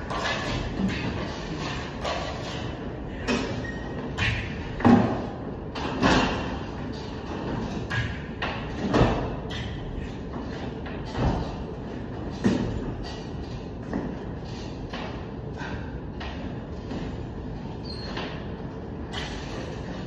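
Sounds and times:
plastering knocks and scrapes: 0.0 - 17.2.

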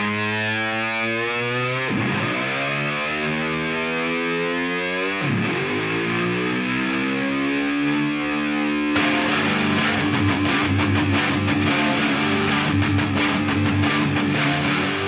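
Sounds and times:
distorted electric guitar: 0.0 - 15.0
rhythmic guitar strumming: 1.8 - 2.8, 5.0 - 6.7, 7.6 - 15.0.

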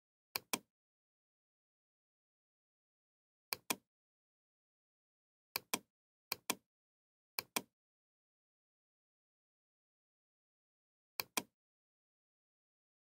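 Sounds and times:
computer mouse button clicking: 3.5 - 3.8, 5.6 - 6.6, 7.4 - 7.7, 11.2 - 11.5.

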